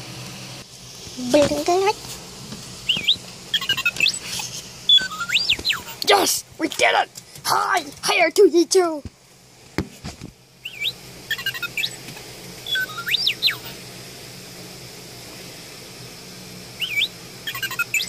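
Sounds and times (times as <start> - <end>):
steady low hum: 0.0 - 18.0
toy robot beeps and whistles: 2.8 - 4.3, 4.9 - 6.0, 10.6 - 12.0, 12.6 - 13.8, 16.8 - 18.0.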